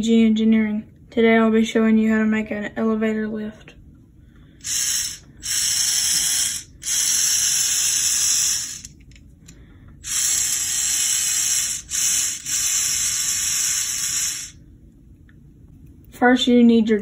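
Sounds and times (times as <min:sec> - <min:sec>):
motor whirring plastic gears: 0:04.6 - 0:09.1, 0:10.0 - 0:14.6.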